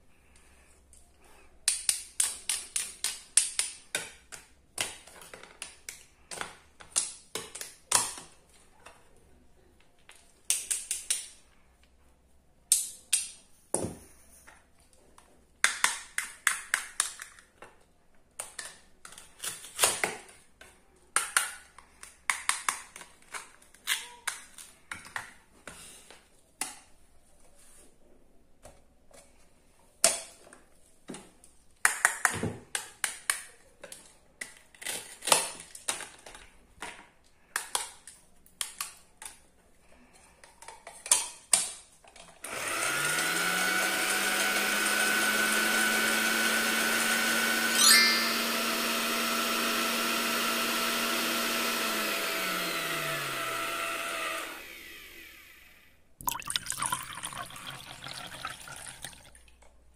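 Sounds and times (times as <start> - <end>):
toy blender motor whirring: 42.4 - 55.9
liquid pouring into plastic cup: 56.2 - 59.6.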